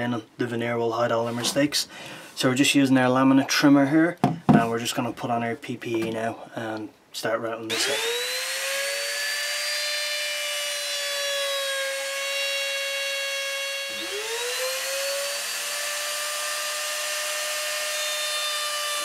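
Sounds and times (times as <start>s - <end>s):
router whining: 7.7s - 19.0s.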